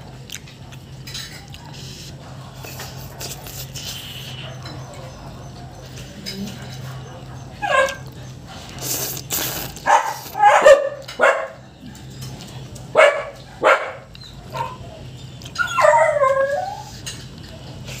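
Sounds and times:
noodles being slurped: 0:01.8 - 0:04.4, 0:08.6 - 0:10.4
dog whining and yipping: 0:07.3 - 0:08.1, 0:15.6 - 0:16.9.

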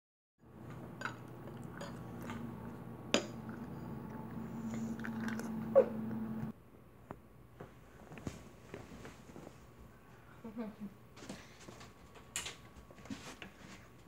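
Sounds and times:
steady low hum: 0:00.4 - 0:06.6
chewing and crunching cereal: 0:00.6 - 0:02.8.

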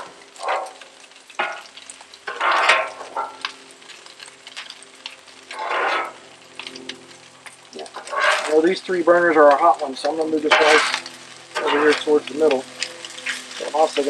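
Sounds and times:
metal spatula scraping griddle: 0:00.0 - 0:03.5, 0:05.5 - 0:06.8, 0:07.8 - 0:08.8, 0:09.4 - 0:14.0
food sizzling: 0:00.0 - 0:14.0.

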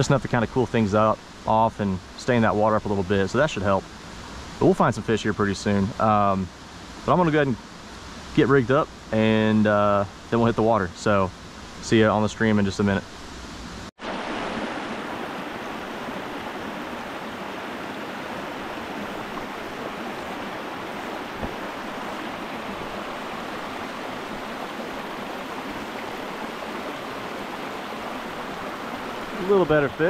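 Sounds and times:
creek water rushing: 0:14.0 - 0:30.0.

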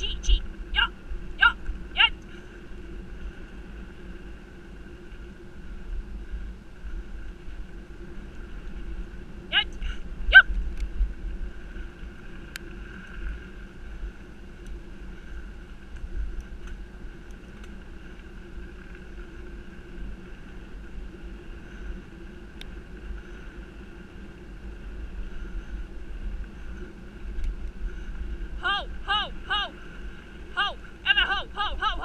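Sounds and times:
steady hum: 0:00.0 - 0:32.0
bike tyres rolling on dirt: 0:00.4 - 0:28.6
bike clicking over bumps: 0:13.4 - 0:21.8.

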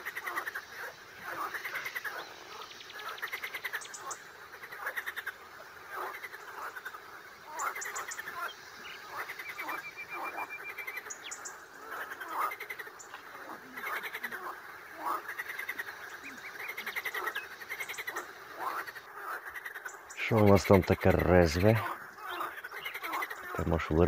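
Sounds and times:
frogs croaking: 0:00.0 - 0:24.0.

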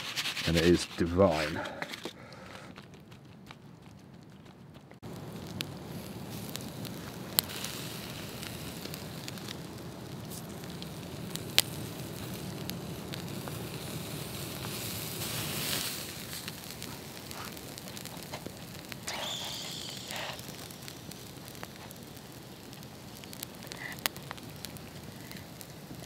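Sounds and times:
embers crackling: 0:00.0 - 0:26.0
steak sizzling on a grill: 0:05.0 - 0:26.0
sharp pops: 0:14.6 - 0:26.0.

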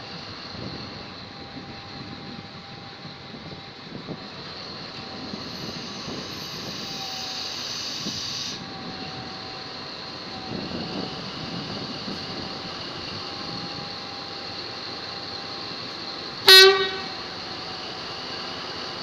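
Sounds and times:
locomotive engine running: 0:00.0 - 0:19.0
air hiss: 0:05.2 - 0:08.8.

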